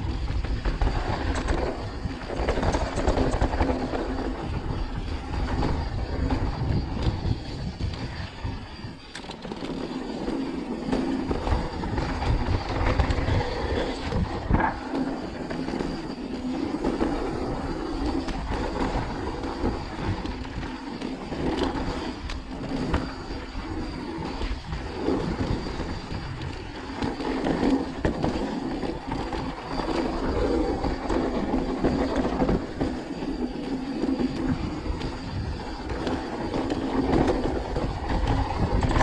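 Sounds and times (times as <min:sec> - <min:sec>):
bike rattling over bumps: 0:00.0 - 0:39.0
bike tyres rolling over dirt: 0:00.0 - 0:39.0
wind noise on camera: 0:00.0 - 0:39.0.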